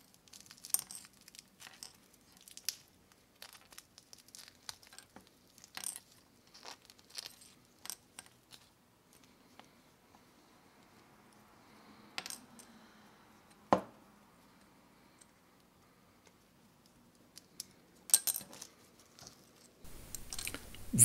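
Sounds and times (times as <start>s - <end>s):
plastic film crinkling: 2.2s - 5.7s.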